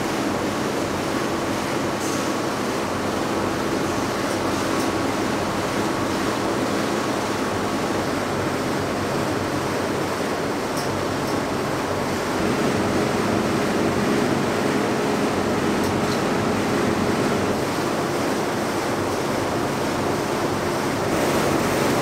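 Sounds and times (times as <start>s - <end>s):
factory machinery whirring: 11.9s - 22.0s.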